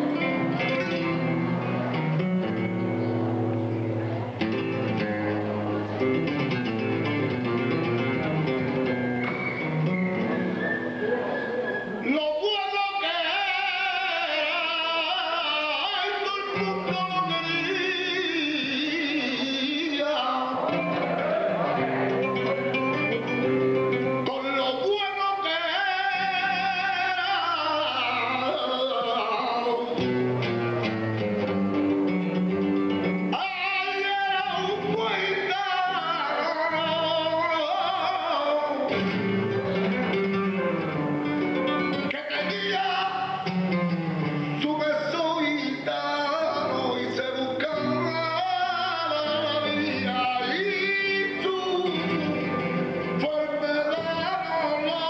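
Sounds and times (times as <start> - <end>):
flamenco guitar: 0.0 - 55.0
man singing ornamented lines: 9.6 - 20.8, 22.0 - 30.1, 33.2 - 40.2, 41.6 - 55.0.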